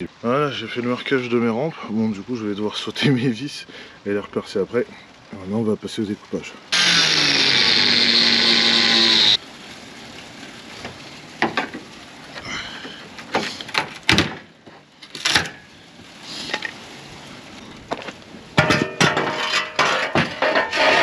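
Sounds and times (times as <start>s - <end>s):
power tool cutting: 6.7s - 9.4s
knocks and clatters: 10.8s - 11.9s, 17.9s - 21.0s.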